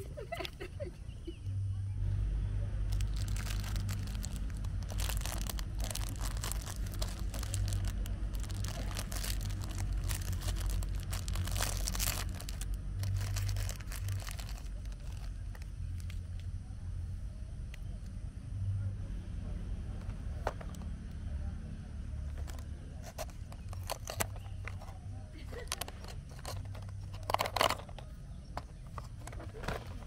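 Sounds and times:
low rumble: 0:01.9 - 0:16.2
plastic wrapper crinkling and tearing: 0:02.9 - 0:16.2, 0:22.3 - 0:28.0.

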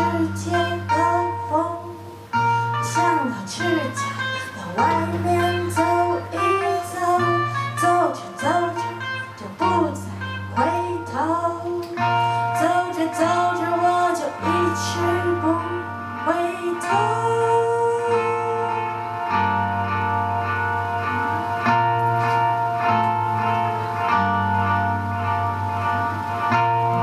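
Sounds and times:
woman singing: 0:00.0 - 0:19.6
acoustic guitars playing: 0:00.0 - 0:27.0.

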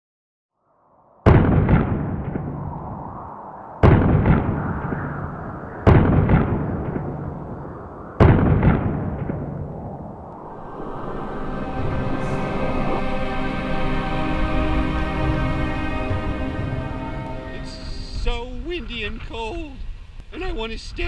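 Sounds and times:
loud booms: 0:01.2 - 0:10.2.

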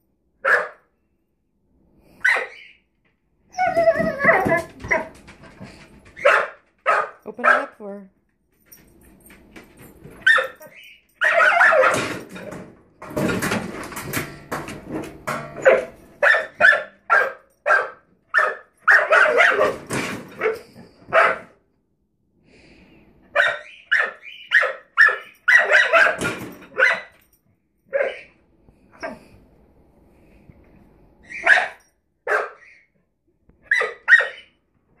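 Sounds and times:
puppy barking: 0:00.4 - 0:00.9, 0:02.2 - 0:02.8, 0:06.2 - 0:07.8, 0:10.2 - 0:12.0, 0:15.6 - 0:19.8, 0:20.4 - 0:21.6, 0:23.4 - 0:27.2, 0:27.9 - 0:28.3, 0:31.3 - 0:32.8, 0:33.6 - 0:34.5.

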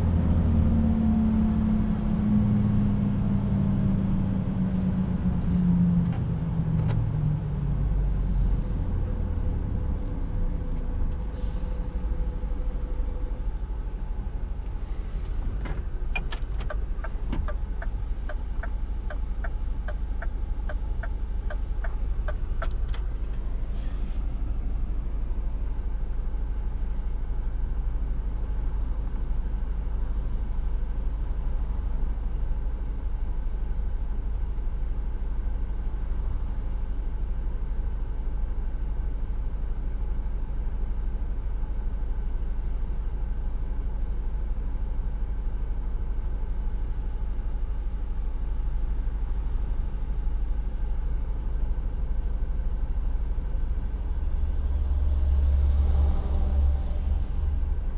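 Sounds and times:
diesel engine low rumble: 0:00.0 - 0:57.9
regular ticking: 0:16.2 - 0:22.8.

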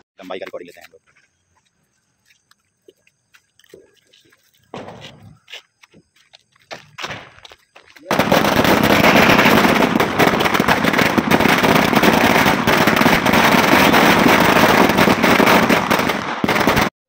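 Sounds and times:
string of firecrackers rattling: 0:08.0 - 0:16.9.

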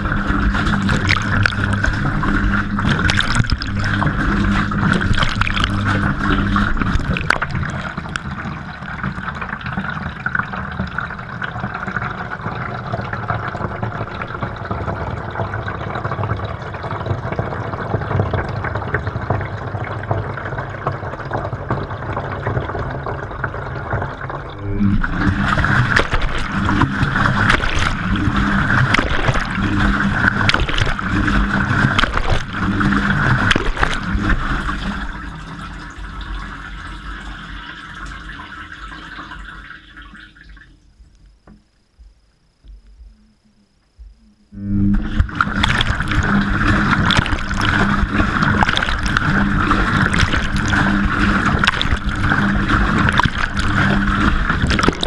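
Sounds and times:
water spraying into drum: 0:00.0 - 0:11.1, 0:23.9 - 0:37.1, 0:44.8 - 0:55.0
water sloshing in washing machine: 0:00.0 - 0:40.8, 0:44.9 - 0:55.0
washing machine pulsing: 0:00.0 - 0:55.0.

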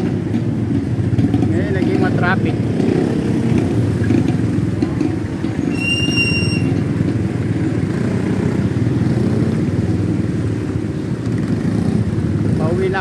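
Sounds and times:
motorcycle engine rumbling: 0:00.0 - 0:13.0
brief high squeal: 0:05.6 - 0:06.8.

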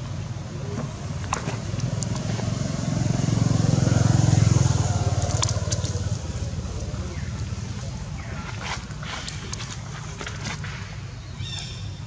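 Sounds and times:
vehicle engine passing: 0:00.3 - 0:09.8.

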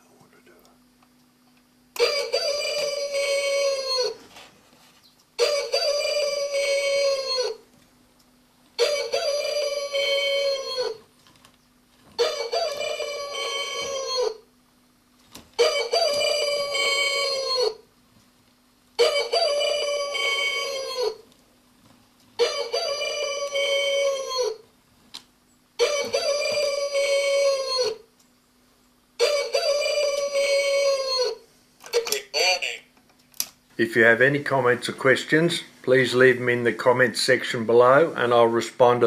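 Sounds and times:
faint steady hum: 0:00.0 - 0:39.0
electronic rooster crow alarm: 0:02.0 - 0:04.2, 0:05.4 - 0:07.6, 0:08.8 - 0:11.0, 0:12.2 - 0:14.5, 0:15.6 - 0:17.8, 0:19.0 - 0:21.2, 0:22.4 - 0:24.6, 0:25.8 - 0:28.1, 0:29.2 - 0:31.4.

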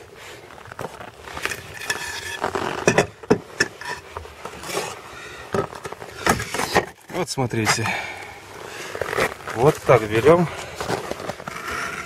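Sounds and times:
strap rustling: 0:08.4 - 0:12.0.

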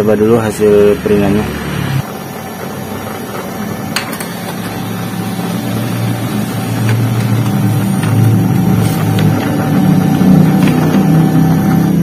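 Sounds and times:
printer motor whirring: 0:00.0 - 0:12.0
printer paper feed clicks: 0:02.4 - 0:11.4.

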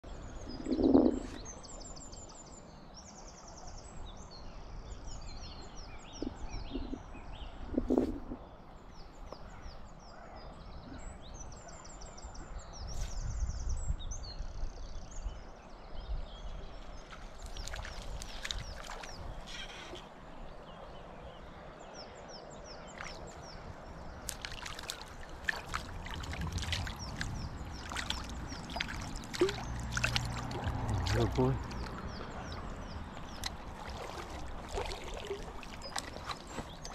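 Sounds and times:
small birds singing: 0:00.0 - 0:36.9
fish splashing in a stream: 0:17.0 - 0:19.8, 0:24.0 - 0:36.9.

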